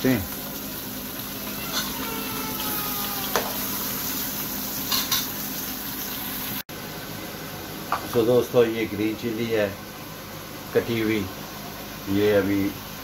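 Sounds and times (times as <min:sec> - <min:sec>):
meat sizzling in oil: 0:00.0 - 0:06.6.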